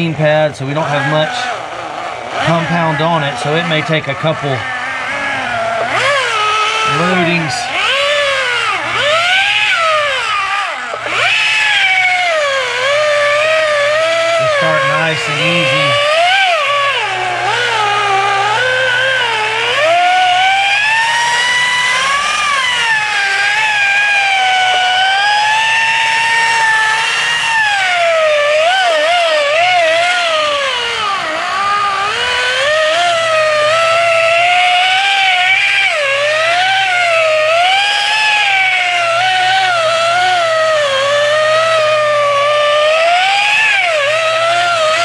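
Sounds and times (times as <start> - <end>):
rotary polisher whine: 0.0 - 45.0
steady low hum: 0.0 - 45.0.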